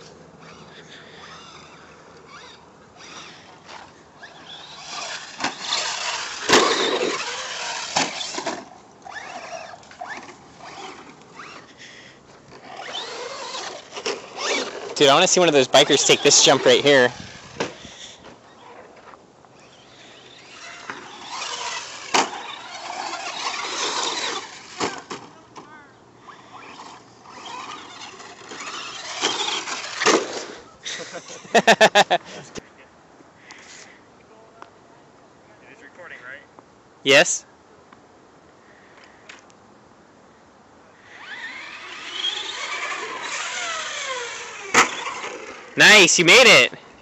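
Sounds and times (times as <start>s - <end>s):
rc car motor and tyres: 0.0s - 32.6s, 40.9s - 47.0s.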